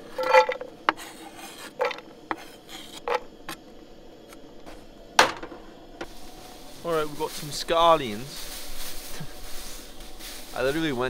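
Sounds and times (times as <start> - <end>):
metal cookware scraping and clinking: 0.0 - 0.7.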